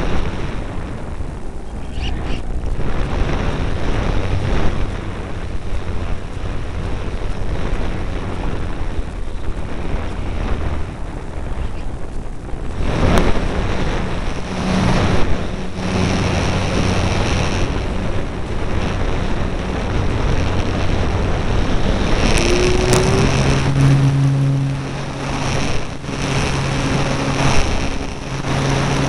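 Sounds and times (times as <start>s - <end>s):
electric motor and propeller: 0.0s - 29.0s
wind rush on microphone: 0.0s - 29.0s.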